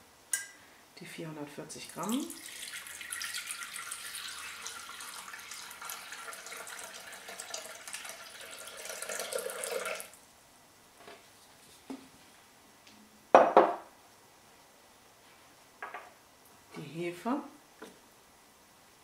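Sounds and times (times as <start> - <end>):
water pouring into metal bowl: 1.9 - 10.2.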